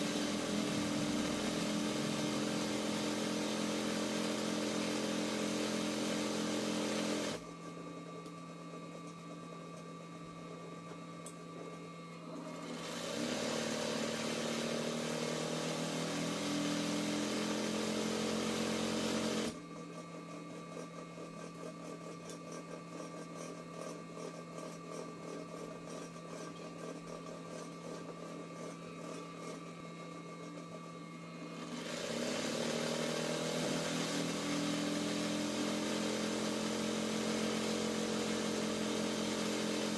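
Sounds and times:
sewing machine stitching: 0.0s - 7.4s, 12.3s - 19.6s, 31.5s - 39.9s.

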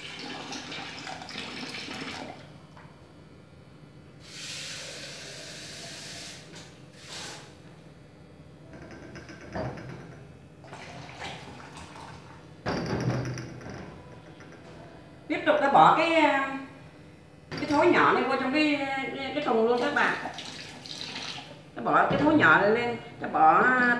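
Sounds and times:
water pouring and splashing: 0.0s - 2.4s, 10.7s - 12.4s, 19.8s - 21.6s.

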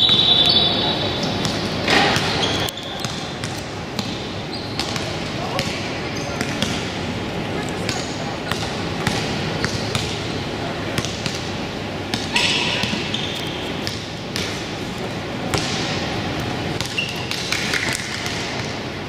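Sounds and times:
shoe squeaks: 0.0s - 3.5s, 4.5s - 5.1s, 12.3s - 13.9s, 16.8s - 17.5s
murmur of voices: 0.0s - 19.0s
basketball bouncing on court: 1.4s - 5.8s, 6.4s - 6.9s, 7.8s - 10.3s, 11.0s - 14.8s, 15.4s - 18.9s.

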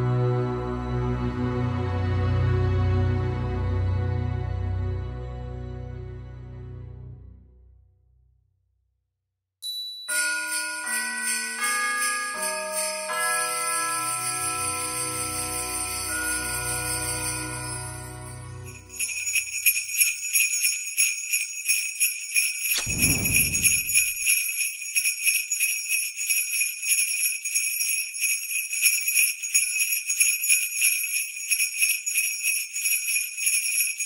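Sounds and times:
jingling bells shaken: 9.6s - 34.0s
deep boom: 22.8s - 24.2s.

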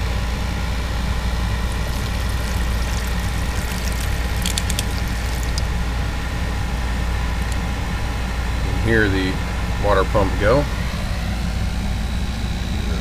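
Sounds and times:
air conditioner humming: 0.0s - 13.0s
water pouring into bucket: 1.6s - 5.8s, 7.4s - 7.6s.

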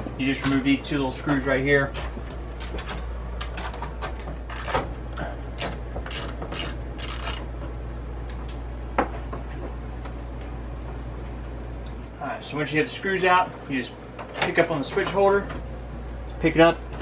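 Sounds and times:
steady low hum: 0.0s - 17.0s
screwdriver clicking and scraping: 5.6s - 7.4s.

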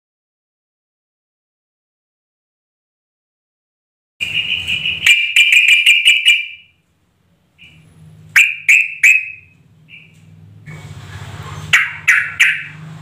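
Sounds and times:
bird calling: 4.2s - 6.7s, 7.6s - 10.3s, 11.7s - 12.8s.

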